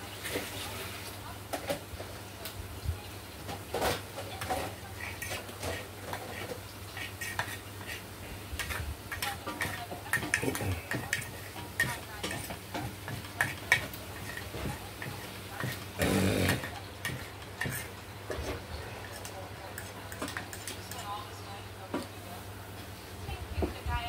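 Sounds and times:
cutlery clinking on a dish: 8.6s - 21.1s.

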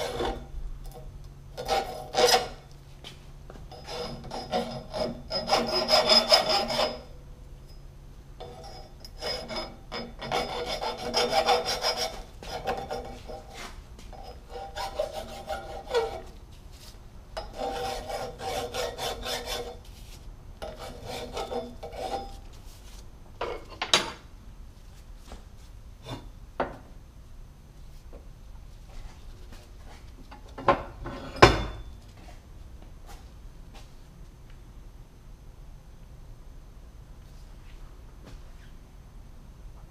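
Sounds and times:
file scraping steel tubing: 0.0s - 0.5s, 1.6s - 2.6s, 3.7s - 7.1s, 8.4s - 16.4s, 17.4s - 19.9s, 20.6s - 22.5s.

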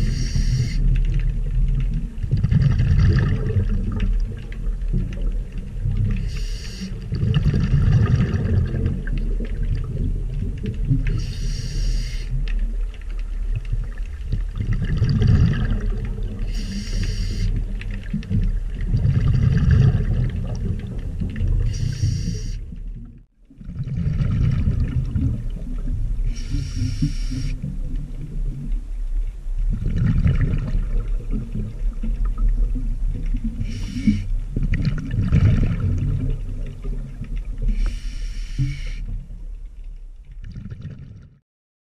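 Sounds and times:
regulator hissing inhale: 0.0s - 0.8s, 6.2s - 7.0s, 11.2s - 12.3s, 16.5s - 17.5s, 21.7s - 22.6s, 26.3s - 27.6s, 33.6s - 34.3s, 37.7s - 39.1s
exhaled bubbles rushing: 0.0s - 28.8s, 29.6s - 37.8s, 40.3s - 41.4s.

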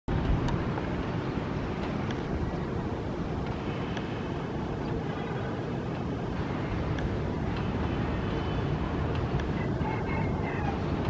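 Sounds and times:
distant city and airport noise: 0.1s - 11.0s
wind rumble on microphone: 0.1s - 11.0s
faint clicks: 3.4s - 5.2s, 9.0s - 9.6s.

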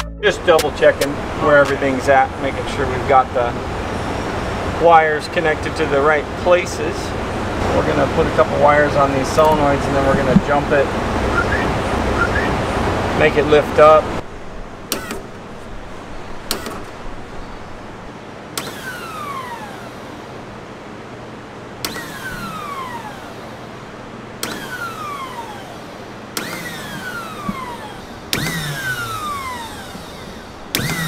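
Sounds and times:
pump motor whine falling in pitch: 0.0s - 20.5s, 21.7s - 31.0s.

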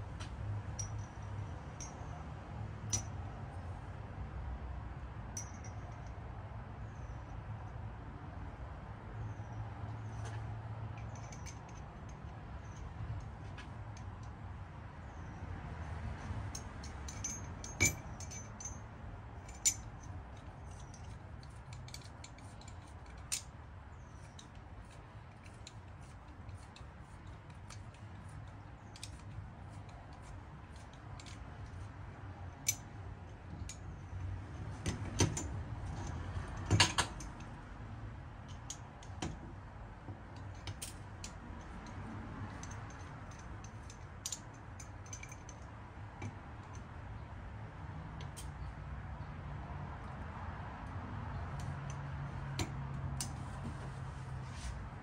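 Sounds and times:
small steel parts clicking: 2.9s - 3.1s, 16.2s - 18.8s, 19.4s - 31.9s, 32.5s - 37.6s, 38.4s - 39.4s, 40.3s - 46.9s, 48.2s - 48.7s.

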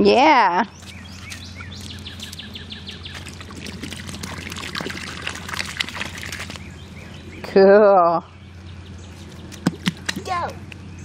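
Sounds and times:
water splashing and trickling: 0.7s - 7.6s, 9.1s - 10.8s.

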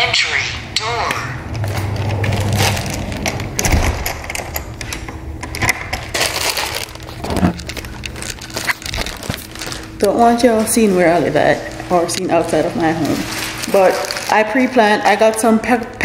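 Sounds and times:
low hum: 0.0s - 15.1s
crackles and knocks from handling objects: 1.5s - 10.2s.

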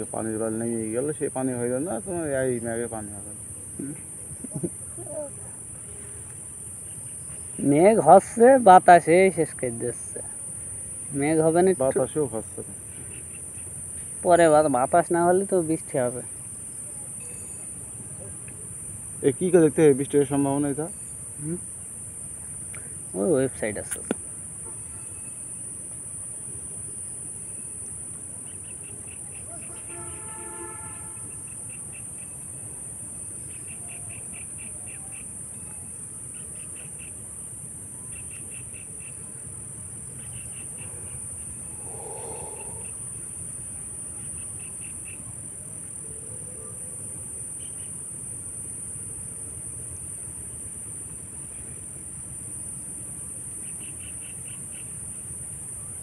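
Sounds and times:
insects chirping rapidly: 0.0s - 56.0s
insects droning: 0.0s - 56.0s
low call: 41.6s - 43.2s.

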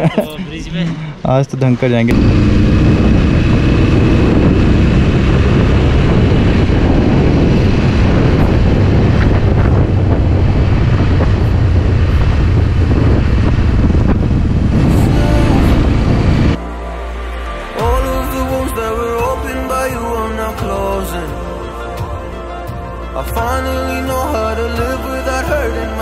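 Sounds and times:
motorcycle engine running: 2.1s - 16.6s
wind rushing over microphone: 2.1s - 16.6s.

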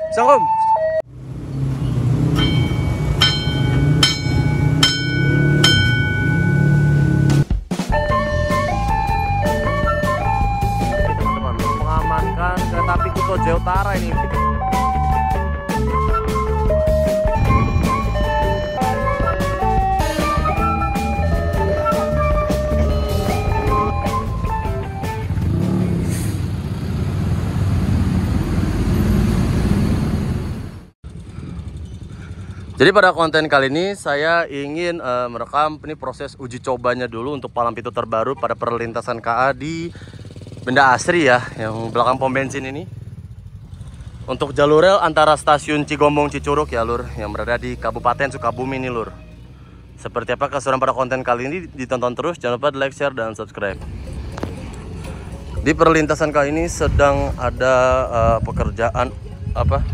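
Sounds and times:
bus engine passing: 0.8s - 7.5s, 14.4s - 33.8s, 39.4s - 52.4s, 53.4s - 58.0s
motorcycle and car traffic: 0.8s - 59.9s
level crossing warning bell: 2.3s - 7.4s, 20.8s - 24.4s.

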